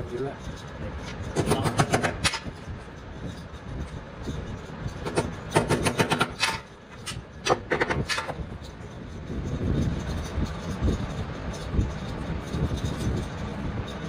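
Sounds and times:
low rumbling background: 0.0 - 14.0.

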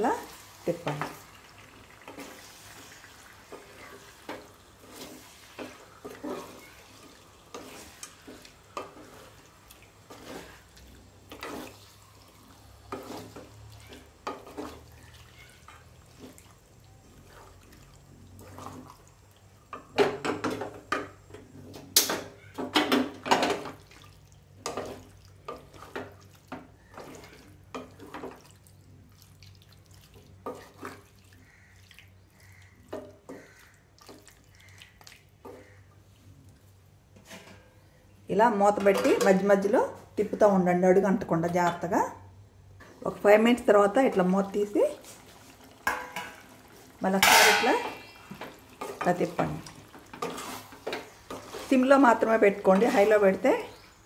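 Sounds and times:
wet squishing: 23.8 - 36.8
spatula scraping metal pan: 47.1 - 48.2, 50.1 - 53.4.

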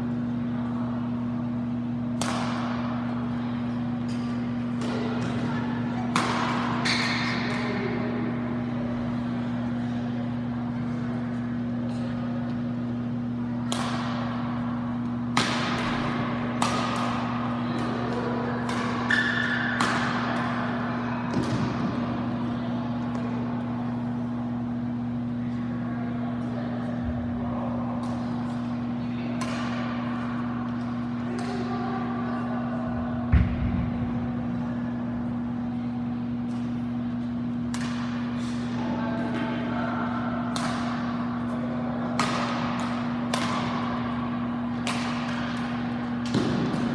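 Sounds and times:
low hum in hall: 0.0 - 46.9
racket striking shuttlecock: 2.1 - 3.1, 4.0 - 8.0, 13.6 - 14.4, 15.0 - 22.0, 29.4 - 30.0, 30.8 - 31.6, 37.6 - 38.8, 40.5 - 46.9.

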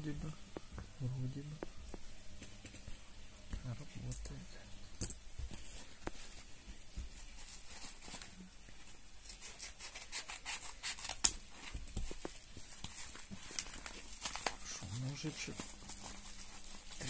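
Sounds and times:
plastic rustling: 5.4 - 17.0.

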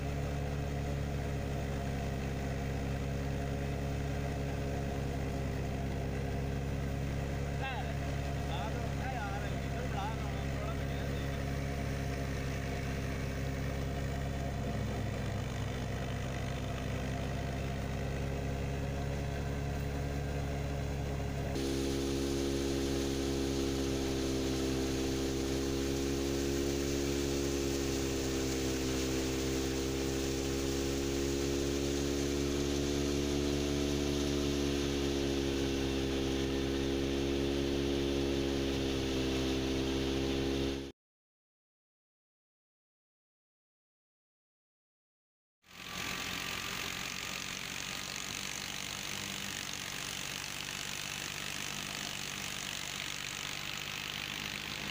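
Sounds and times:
thresher and tractor humming: 0.0 - 40.9, 45.7 - 54.9
hissy wavering hum: 17.7 - 40.1.

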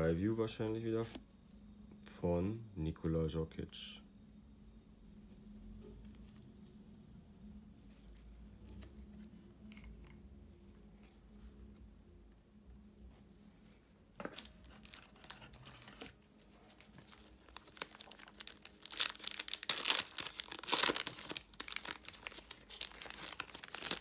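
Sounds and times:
wrapper crinkling and tearing: 14.2 - 24.0.

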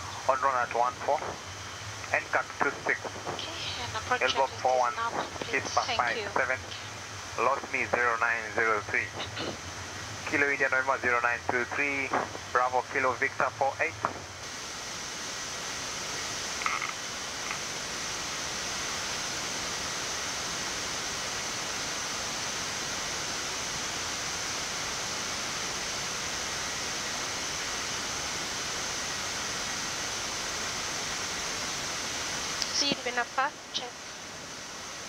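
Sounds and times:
cockpit airflow hiss: 0.0 - 35.0.

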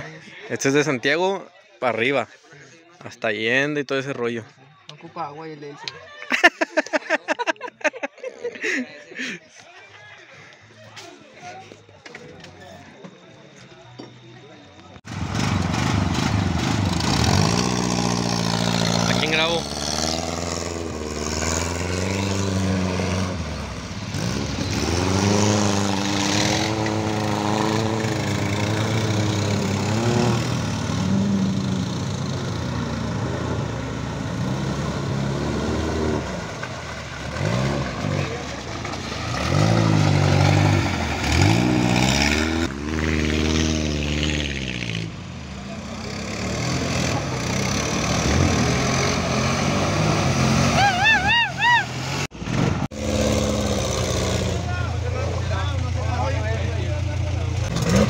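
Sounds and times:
car engine revving: 15.1 - 58.0
atv driving through water: 15.3 - 52.3, 53.0 - 58.0.

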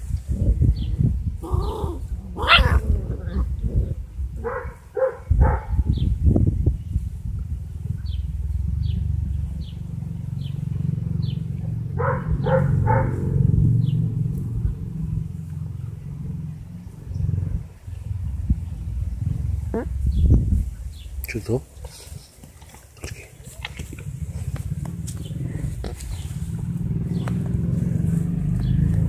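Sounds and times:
steady low rumble: 0.0 - 29.0
puppies yelping and whining: 1.4 - 3.6.

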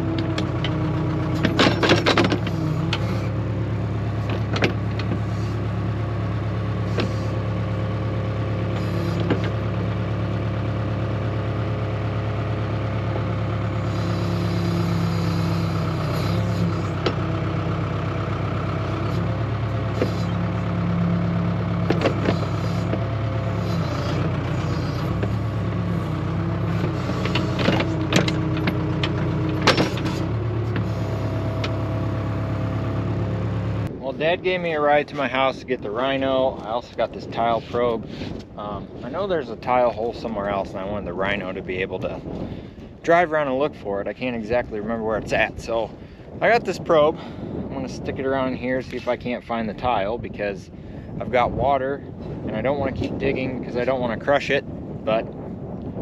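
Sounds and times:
hydraulic whine: 0.0 - 43.0
diesel engine under load: 0.0 - 56.0.

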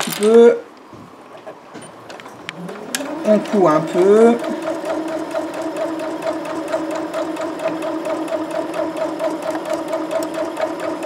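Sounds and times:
sewing machine running: 2.6 - 11.0.

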